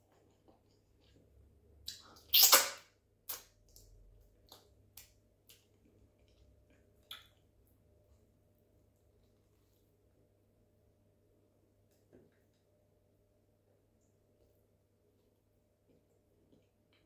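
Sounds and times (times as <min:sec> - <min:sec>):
mouth clicks and smacks chewing: 0:03.3 - 0:07.5.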